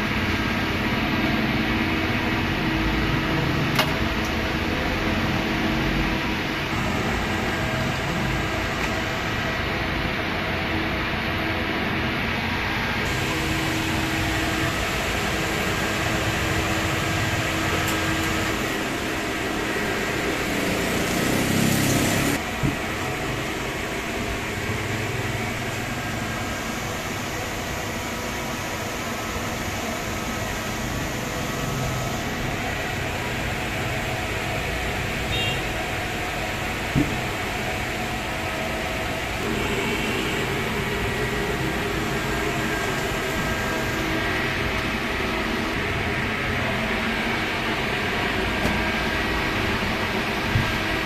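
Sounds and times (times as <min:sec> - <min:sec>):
machine hum: 0:00.0 - 0:51.0
street noise: 0:00.0 - 0:51.0.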